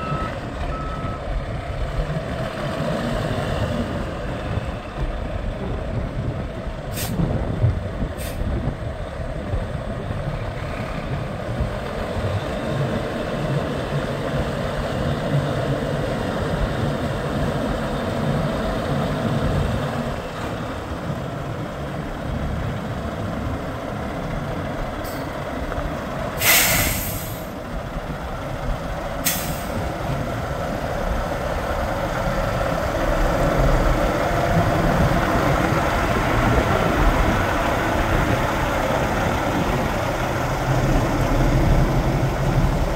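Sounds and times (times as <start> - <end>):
diesel truck engine running: 0.0 - 42.9
compressed air hissing: 26.4 - 27.5.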